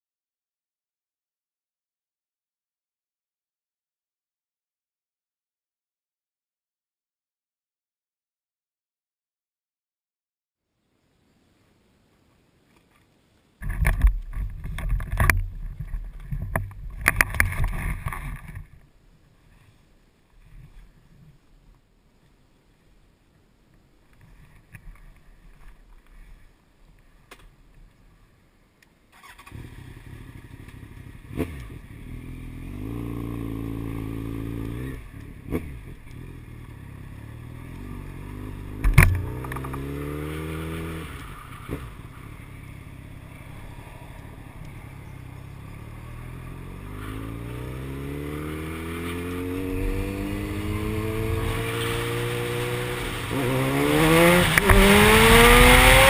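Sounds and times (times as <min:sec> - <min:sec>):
motorcycle engine accelerating: 0:29.2 - 0:56.0.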